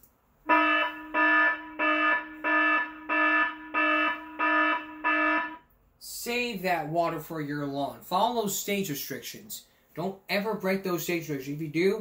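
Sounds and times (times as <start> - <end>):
electronic buzzer beeping: 0.5 - 5.6.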